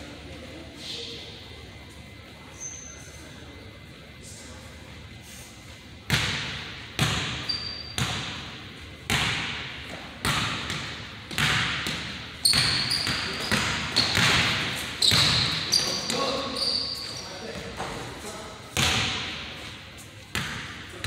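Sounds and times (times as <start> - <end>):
sneaker squeaks: 2.1 - 3.4, 7.0 - 8.5, 10.4 - 18.2
basketball bouncing on hardwood floor: 10.2 - 15.6.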